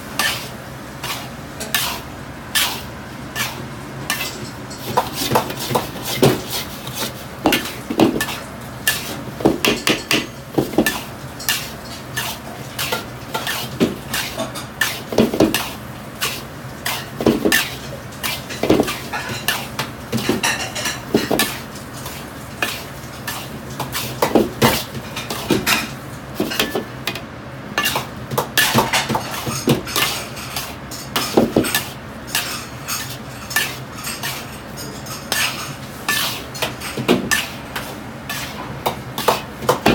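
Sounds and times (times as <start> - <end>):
metal ladle scraping a wok: 0.2 - 7.6, 10.9 - 19.6, 31.7 - 39.4.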